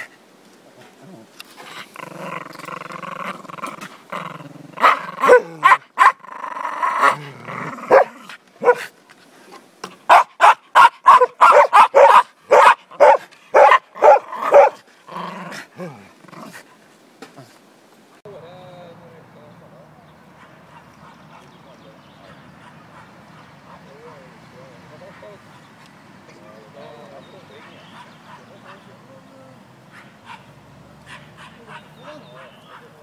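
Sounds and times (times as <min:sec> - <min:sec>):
dog growling: 0:01.0 - 0:08.8, 0:12.9 - 0:16.6
dog barking: 0:04.8 - 0:06.2, 0:07.9 - 0:08.9, 0:10.1 - 0:14.8, 0:29.9 - 0:32.9.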